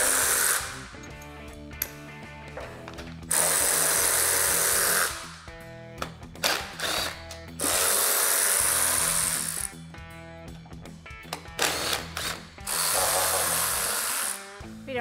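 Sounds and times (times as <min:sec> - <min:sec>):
cordless power tool spinning: 0:00.0 - 0:00.9, 0:03.3 - 0:05.2, 0:06.5 - 0:09.7, 0:11.6 - 0:14.5
background music: 0:00.0 - 0:15.0.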